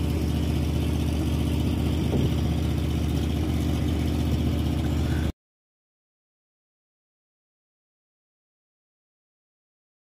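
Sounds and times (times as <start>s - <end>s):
engine idling: 0.0s - 5.3s.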